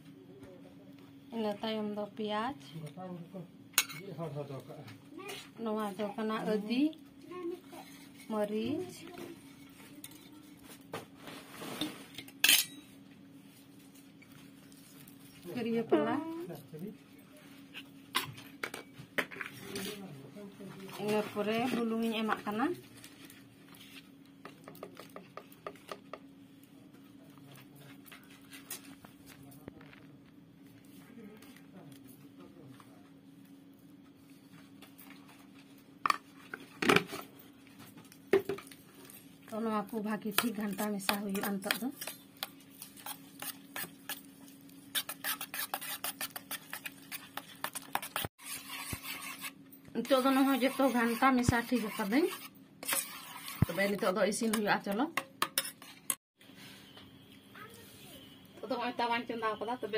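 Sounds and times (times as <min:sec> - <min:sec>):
metal spoon clinking on steel bowl: 0:12.4 - 0:12.9.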